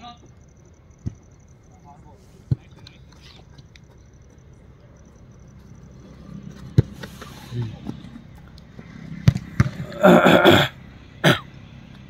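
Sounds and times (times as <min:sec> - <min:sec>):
football kicks thudding: 0:09.2 - 0:09.8.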